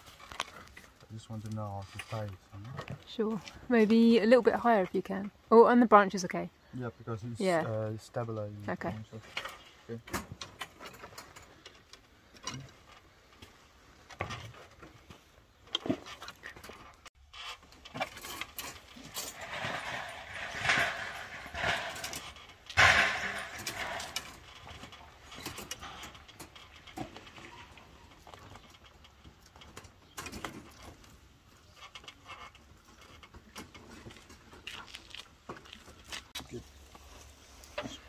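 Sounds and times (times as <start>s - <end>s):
leafy branches rustling: 9.1s - 33.0s.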